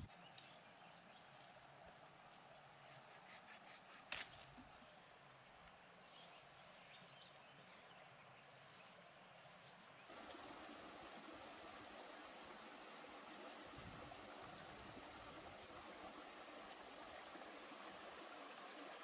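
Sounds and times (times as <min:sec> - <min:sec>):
machete cutting stem snap: 0:04.1 - 0:04.5.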